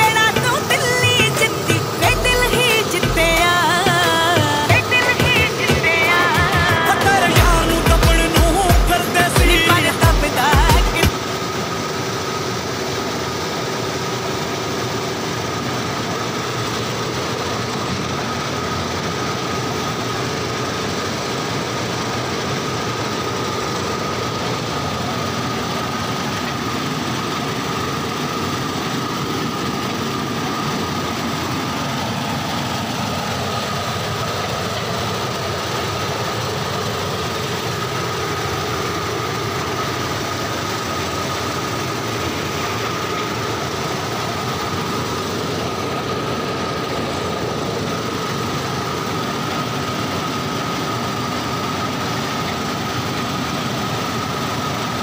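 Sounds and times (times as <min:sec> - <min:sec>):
combine harvester running: 0:00.0 - 0:55.0
high machine whine: 0:00.0 - 0:55.0.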